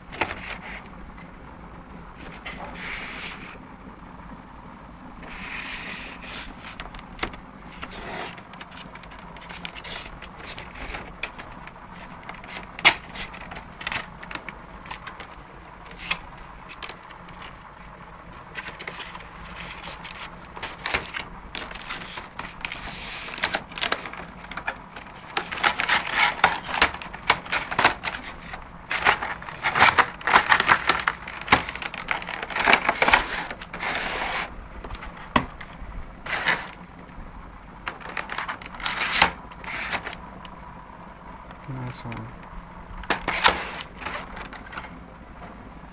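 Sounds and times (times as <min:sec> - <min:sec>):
packaging crackling and rustling: 0:00.0 - 0:01.1, 0:05.2 - 0:40.7, 0:41.4 - 0:45.4
packaging clicks and knocks: 0:06.7 - 0:17.6, 0:18.5 - 0:36.8, 0:37.8 - 0:40.6, 0:43.0 - 0:45.0.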